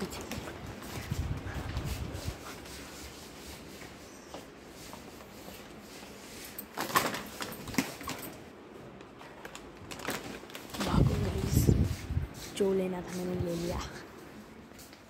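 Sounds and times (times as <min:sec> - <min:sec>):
faint shop background: 0:00.0 - 0:15.0
plastic snack packets rustling: 0:06.7 - 0:11.6.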